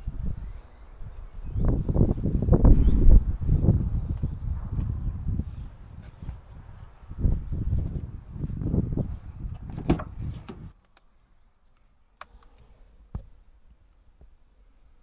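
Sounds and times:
microphone handling rumble: 1.5s - 10.7s.

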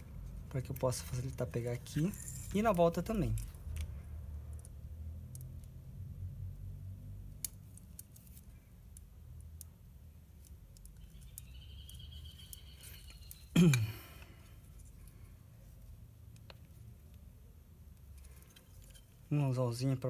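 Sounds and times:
faint clicks and rubbing: 17.9s - 19.3s.

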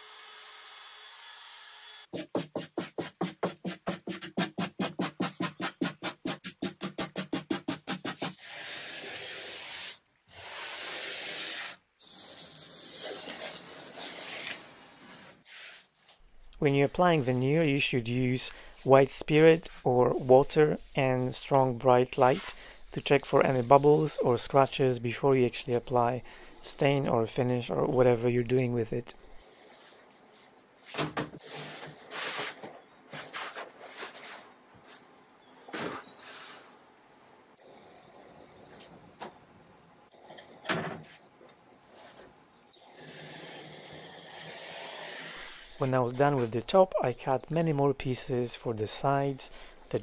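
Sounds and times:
sanding sponge scraping wood: 2.2s - 11.7s, 16.7s - 24.7s
wood veneer sheet rustling: 13.0s - 24.7s.

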